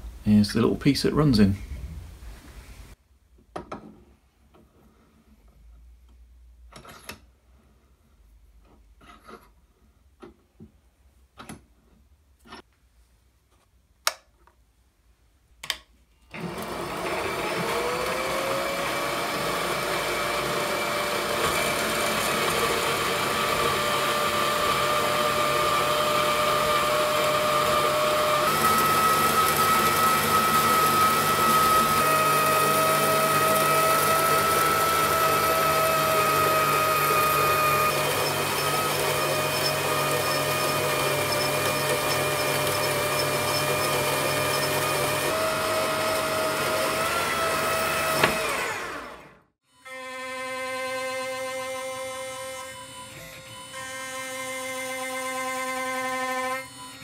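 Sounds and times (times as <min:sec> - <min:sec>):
bandsaw cutting metal: 0:16.4 - 0:57.0.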